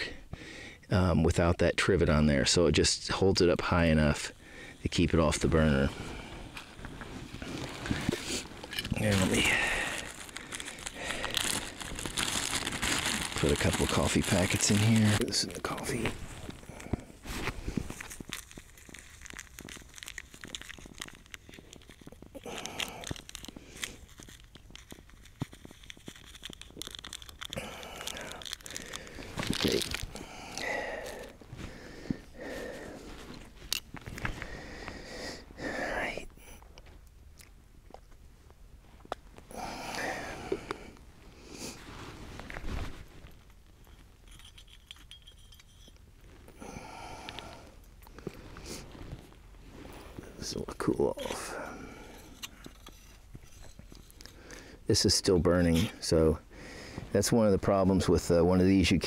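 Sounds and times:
coffee packets crinkling: 0:04.4 - 0:35.6, 0:36.9 - 0:59.0
rustling: 0:05.2 - 0:35.5, 0:37.9 - 0:46.6, 0:47.4 - 0:57.3
packet tearing: 0:07.3 - 0:31.5
metallic clicks and clinks: 0:43.9 - 0:46.1.

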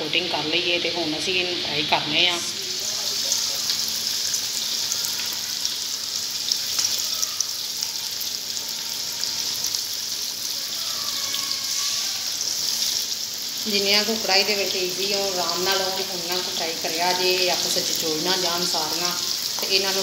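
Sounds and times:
food deep-frying in oil: 0:00.0 - 0:20.0.

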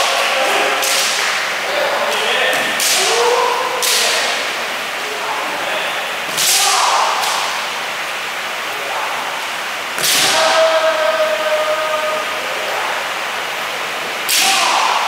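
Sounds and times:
fighters shouting: 0:00.0 - 0:07.7, 0:08.7 - 0:09.4, 0:10.0 - 0:13.2, 0:14.3 - 0:15.0
bamboo swords striking armour: 0:10.0 - 0:10.5.

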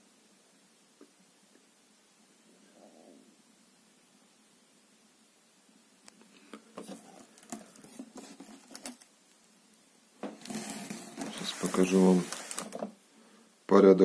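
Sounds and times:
paper sheet rustling: 0:06.8 - 0:09.1, 0:10.3 - 0:12.9.

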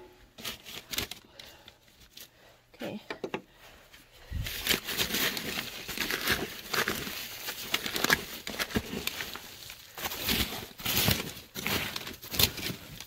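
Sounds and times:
crinkling rustling newspaper: 0:00.4 - 0:02.5, 0:04.2 - 0:13.0.

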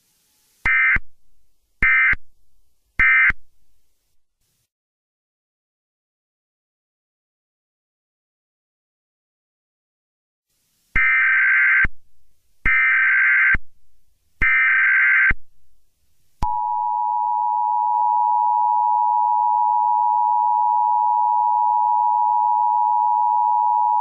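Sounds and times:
loud steady two-tone alarm: 0:00.7 - 0:01.1, 0:01.8 - 0:02.2, 0:03.0 - 0:03.4, 0:11.0 - 0:11.9, 0:12.7 - 0:13.6, 0:14.4 - 0:15.4.

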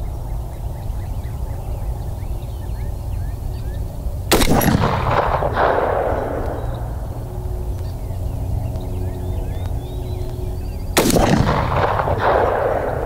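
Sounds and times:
rifle shot: 0:04.3 - 0:07.3, 0:11.0 - 0:13.0
gunshot echo rolling: 0:04.3 - 0:07.8, 0:11.0 - 0:13.0.

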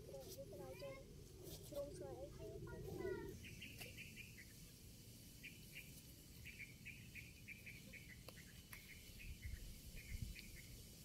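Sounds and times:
small bird chirping: 0:03.0 - 0:11.0.

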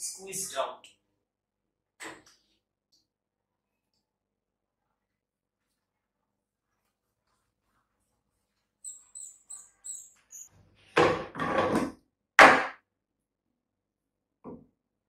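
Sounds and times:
faint high squeaks: 0:08.8 - 0:10.6.

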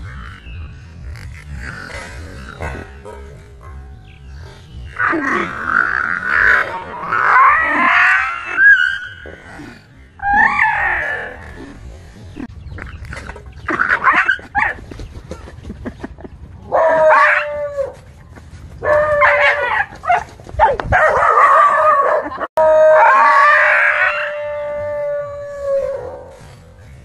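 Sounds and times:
dog barking: 0:18.8 - 0:22.3
dog howling: 0:21.2 - 0:26.3.

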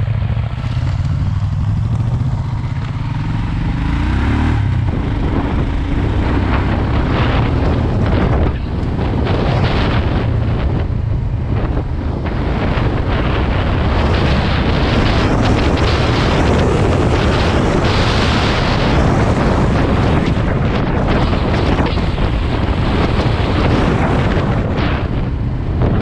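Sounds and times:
motorcycle engine running: 0:00.0 - 0:26.0
wind buffeting microphone: 0:00.0 - 0:26.0.

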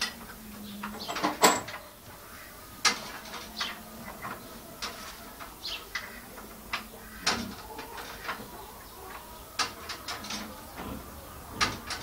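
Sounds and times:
tools clicking and knocking: 0:09.6 - 0:10.9.

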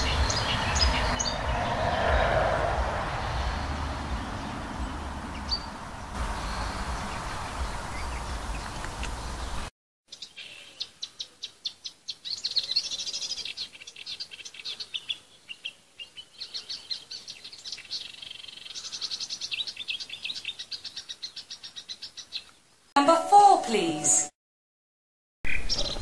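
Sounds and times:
warbler singing chattering trills: 0:00.0 - 0:01.5, 0:04.2 - 0:22.5, 0:25.5 - 0:26.0.

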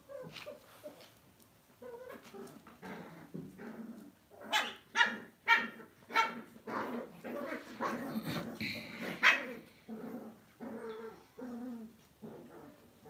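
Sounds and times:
dogs growling: 0:01.8 - 0:04.5, 0:06.4 - 0:13.0.

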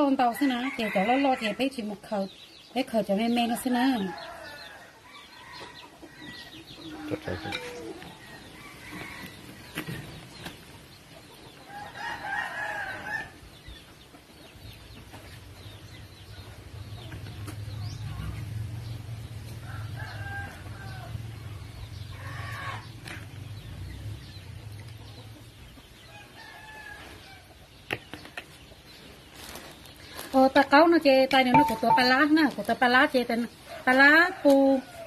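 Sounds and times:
chickens calling: 0:03.7 - 0:30.4.

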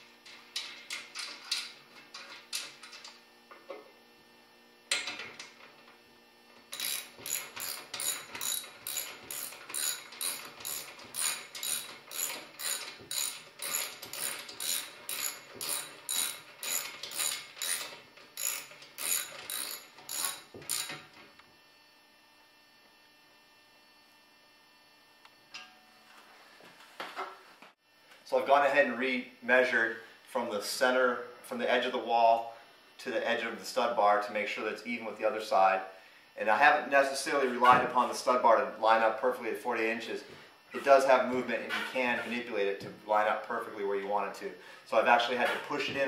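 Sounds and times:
ratchet wrench clicking: 0:06.7 - 0:21.0.

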